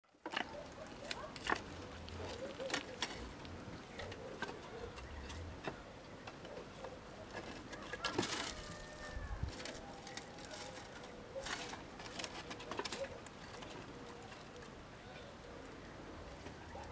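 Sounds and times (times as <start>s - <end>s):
rustling in dry grass: 7.4s - 14.8s.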